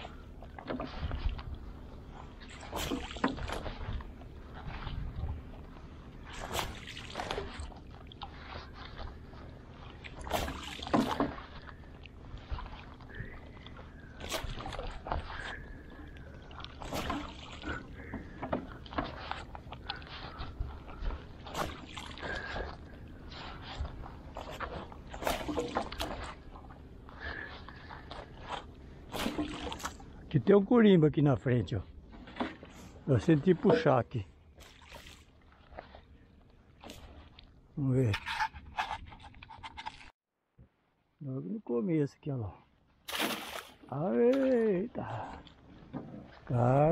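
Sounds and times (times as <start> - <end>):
water splashing and dripping: 2.4 - 4.0, 5.7 - 30.2, 32.2 - 36.0, 43.1 - 45.6.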